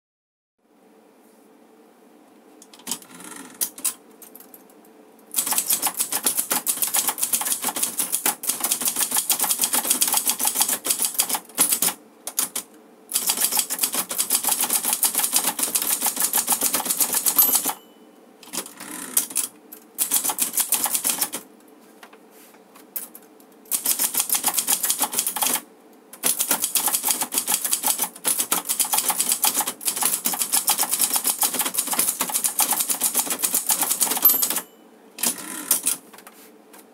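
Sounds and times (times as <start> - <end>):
typewriter typing fast: 5.3 - 17.8, 18.5 - 21.4, 23.7 - 36.0.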